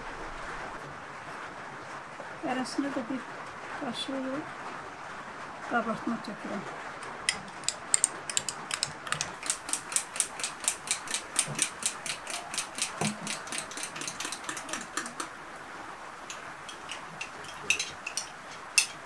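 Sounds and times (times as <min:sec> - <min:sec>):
spoon clinking against glass: 0:16.3 - 0:19.0.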